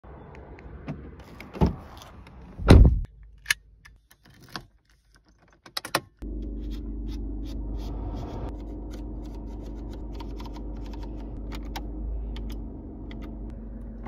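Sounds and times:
car door clicks and clunks: 0:02.6 - 0:03.1
car door closing thud: 0:02.6 - 0:03.1
car engine idling: 0:06.2 - 0:14.0.

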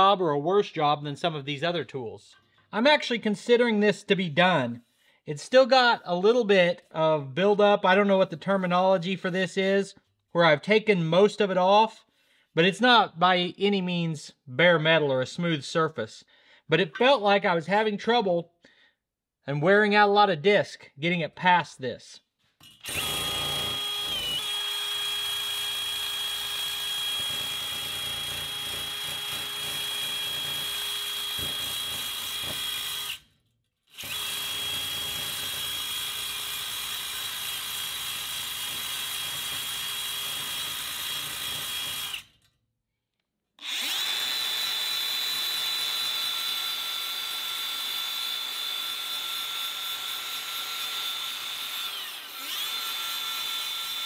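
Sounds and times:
cordless drill whining: 0:22.6 - 0:42.5, 0:43.6 - 0:54.0.

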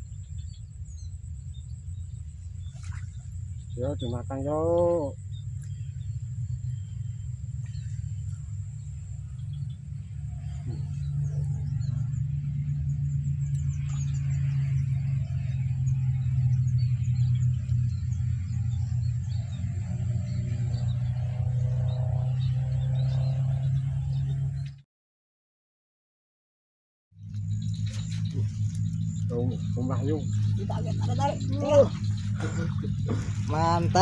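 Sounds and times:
faint bird chirps: 0:00.0 - 0:15.2, 0:27.4 - 0:34.0
thin steady insect tone: 0:00.0 - 0:20.9, 0:27.2 - 0:34.0
wind buffeting microphone: 0:28.0 - 0:34.0.

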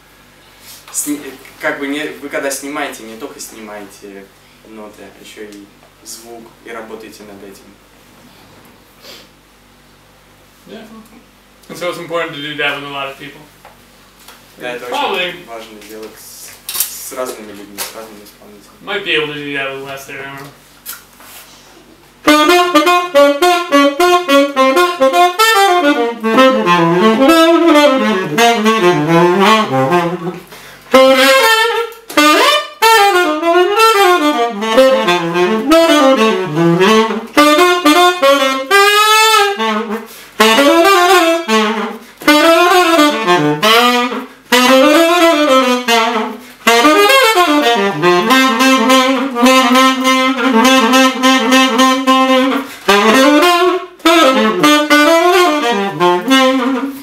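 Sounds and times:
tenor saxophone jazz runs: 0:22.0 - 0:57.0.

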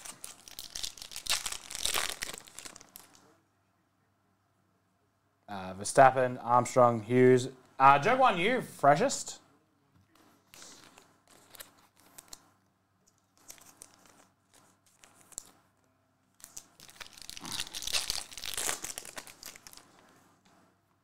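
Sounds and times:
foil wrapper tearing and crinkling: 0:00.0 - 0:03.2, 0:10.6 - 0:12.4, 0:13.4 - 0:15.5, 0:16.4 - 0:19.9.

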